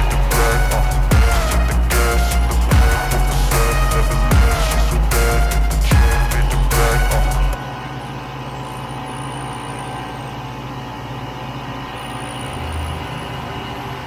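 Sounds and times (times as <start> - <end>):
background music: 0.0 - 8.6
snowmobile engine running: 0.0 - 10.5.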